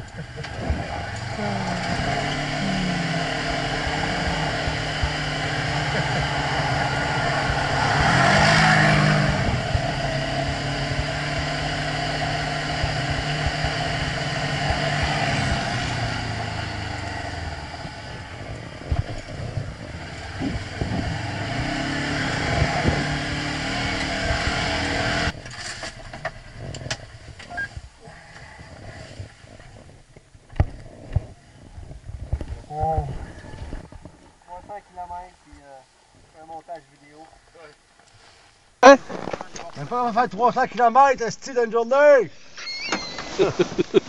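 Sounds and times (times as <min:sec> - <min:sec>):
utility vehicle engine running: 0:00.0 - 0:31.4.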